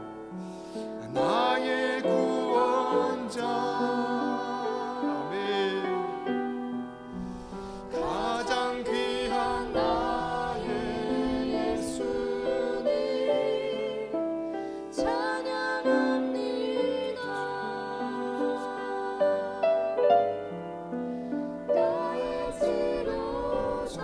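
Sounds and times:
man singing: 1.0 - 6.4, 7.9 - 10.8.

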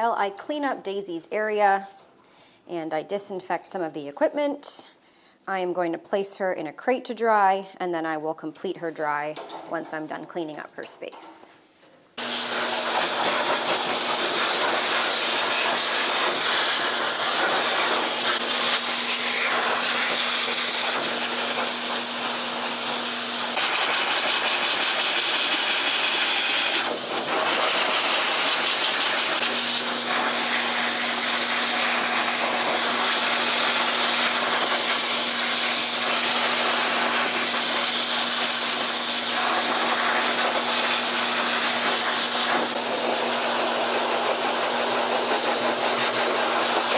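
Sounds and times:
dryer air rushing: 12.2 - 34.0.

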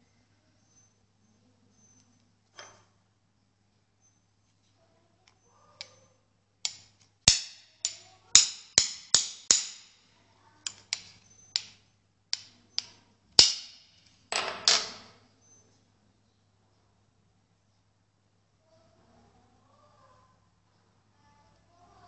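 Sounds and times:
hammer knocking brass padlock: 6.7 - 10.0, 13.4 - 15.0.

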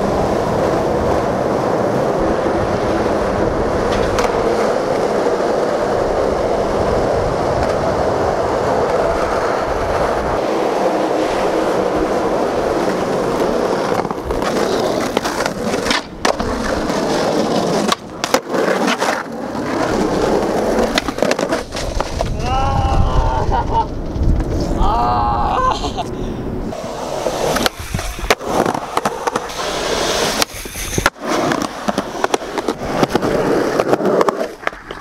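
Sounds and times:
skateboard wheels rolling on concrete: 0.0 - 35.0.

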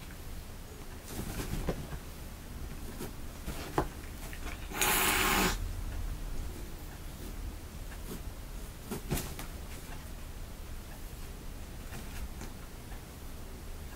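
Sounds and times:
fabric rustle: 1.0 - 2.1.

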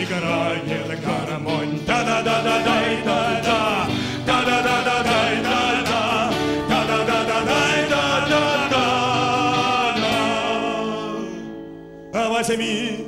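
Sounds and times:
acoustic guitars playing: 0.0 - 13.0
man singing: 0.0 - 13.0.

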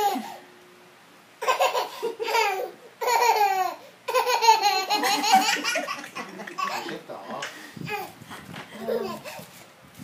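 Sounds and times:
toddler laughing: 0.0 - 0.4, 1.4 - 8.2, 8.8 - 9.4.

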